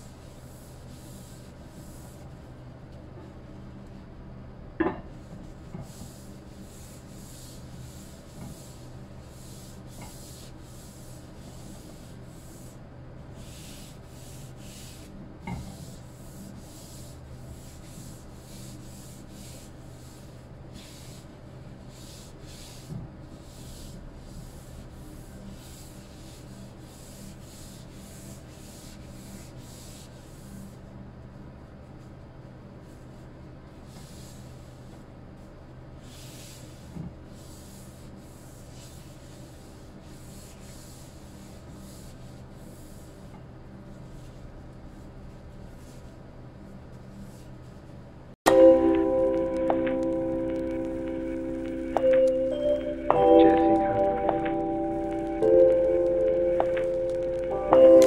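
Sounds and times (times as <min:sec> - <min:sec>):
paper towel rubbing on wood: 0:05.8 - 0:30.9, 0:32.8 - 0:48.0
low steady hum: 0:48.5 - 0:58.0.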